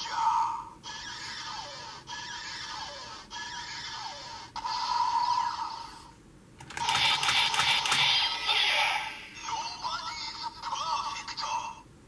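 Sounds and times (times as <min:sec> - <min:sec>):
electronic toy belt sound loop: 0:06.6 - 0:10.2.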